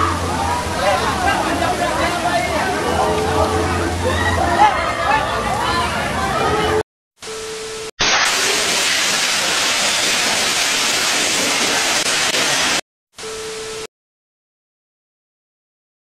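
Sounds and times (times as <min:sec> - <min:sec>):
steady beep tone: 0:07.2 - 0:08.0
static bursts: 0:07.2 - 0:13.8
rushing hiss of static: 0:08.0 - 0:12.8.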